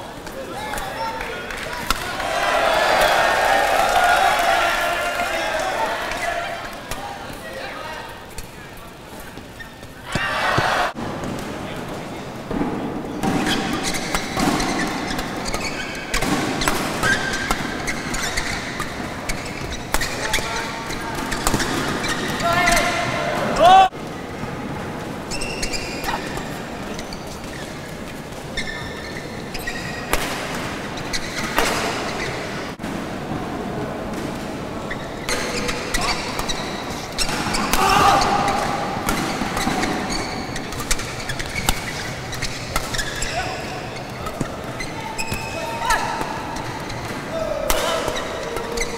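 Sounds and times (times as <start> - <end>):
crowd noise in a hall: 0.0 - 48.9
shoes squeaking on court: 5.4 - 32.9, 34.1 - 48.9
racket striking shuttlecock: 13.2 - 20.5, 30.0 - 32.4, 35.3 - 43.2.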